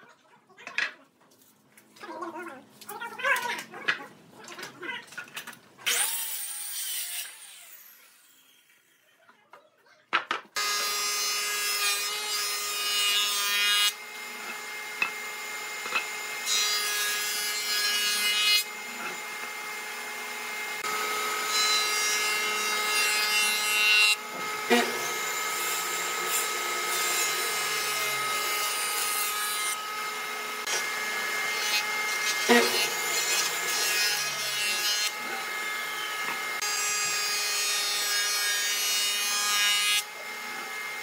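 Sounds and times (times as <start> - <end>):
circular saw cutting wood: 5.8 - 9.0, 10.6 - 41.0
board being planed: 10.2 - 20.1, 20.8 - 40.9
jointer-planer humming: 18.5 - 34.1.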